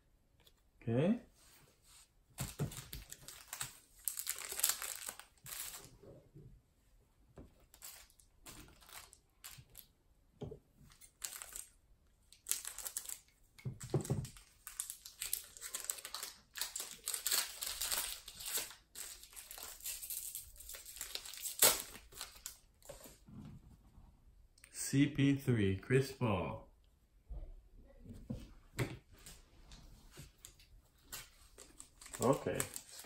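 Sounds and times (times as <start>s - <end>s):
cards rustling: 2.4s - 5.9s, 7.7s - 9.8s, 12.4s - 13.3s, 14.2s - 23.2s, 30.2s - 33.0s
foil wrapper crinkling and tearing: 2.5s - 5.9s, 7.7s - 9.9s, 11.0s - 11.8s, 12.4s - 13.3s, 14.3s - 22.6s, 31.5s - 33.0s.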